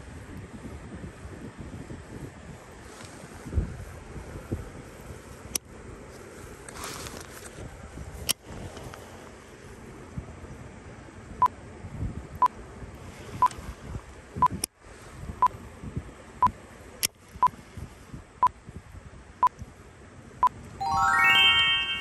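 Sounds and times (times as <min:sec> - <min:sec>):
rising run of tones: 0:20.8 - 0:22.0.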